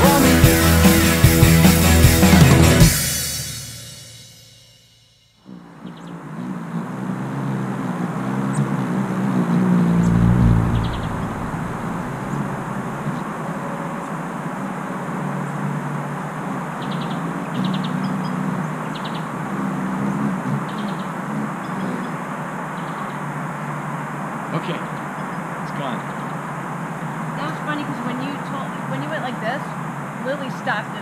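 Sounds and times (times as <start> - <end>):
traffic hum: 7.8 - 14.2
vehicle passing: 8.7 - 13.7.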